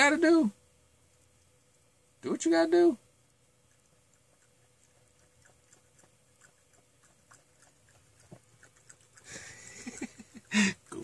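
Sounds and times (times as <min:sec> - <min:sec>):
cat lapping water: 0:03.3 - 0:11.0.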